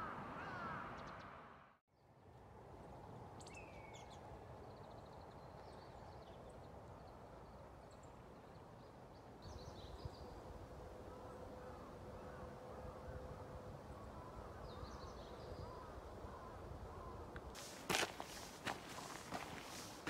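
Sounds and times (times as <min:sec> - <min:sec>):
small birds chirping: 0:17.0 - 0:20.0.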